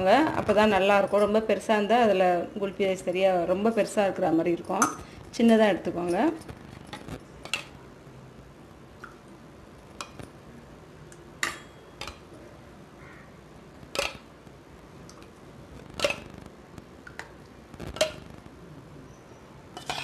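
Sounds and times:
steel ladle clinking bowl: 11.4s - 12.3s, 19.8s - 20.0s.

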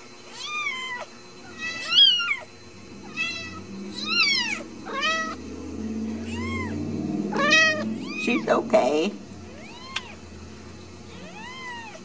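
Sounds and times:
kitten mewing: 0.3s - 5.4s, 6.1s - 8.6s, 9.5s - 10.2s, 11.1s - 12.0s.

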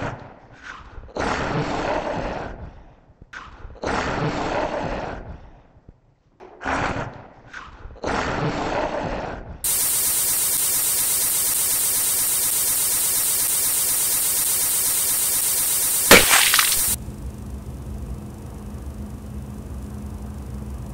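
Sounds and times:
loud steady hiss: 9.7s - 17.0s
sharp explosive burst: 12.4s - 17.0s.

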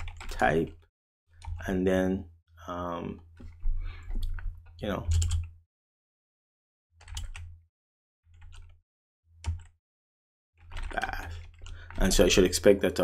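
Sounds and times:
keyboard keystrokes: 5.1s - 5.5s, 7.0s - 7.5s.

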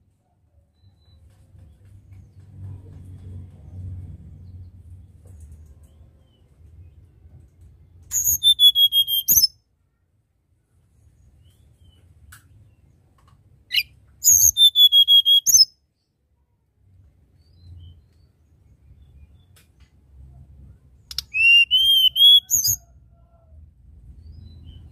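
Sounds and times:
bird whistling: 8.1s - 9.5s, 13.7s - 15.7s, 21.1s - 22.8s.

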